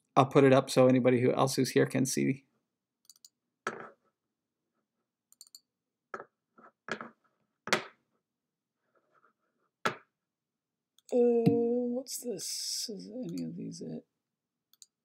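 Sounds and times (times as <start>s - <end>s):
computer clicks: 3.0s - 3.4s, 5.3s - 5.6s, 14.7s - 15.0s.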